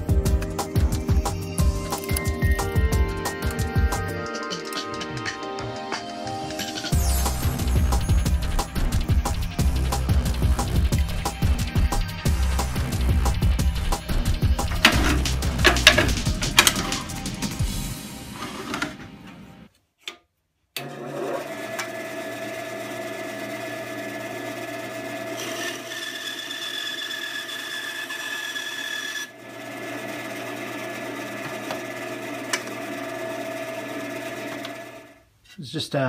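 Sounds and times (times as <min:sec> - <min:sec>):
bandsaw motor hum: 0:07.2 - 0:17.6, 0:20.8 - 0:35.2
saw blade whine: 0:24.4 - 0:35.1.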